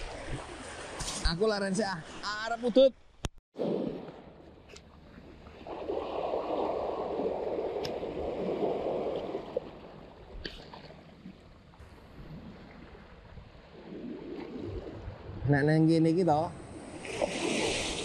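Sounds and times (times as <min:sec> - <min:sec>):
waves washing over pebbles: 0:05.3 - 0:10.3.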